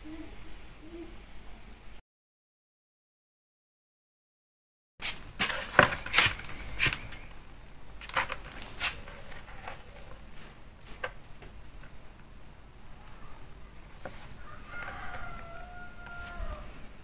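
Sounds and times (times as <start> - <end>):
hand scraping in wood ash: 5.0 - 7.3, 8.0 - 11.0.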